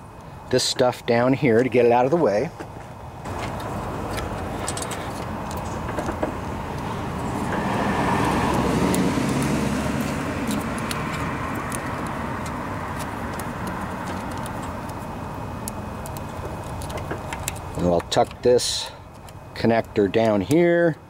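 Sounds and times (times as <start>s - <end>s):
vehicle passing by: 3.3s - 15.0s
wires clicking: 3.3s - 20.7s.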